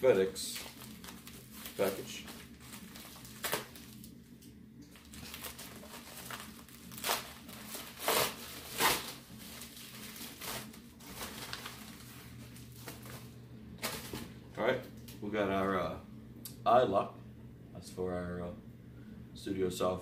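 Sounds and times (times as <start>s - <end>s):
paper crinkling and rustling: 0.0s - 14.3s
paper envelope tearing: 0.5s - 4.1s, 5.0s - 13.2s.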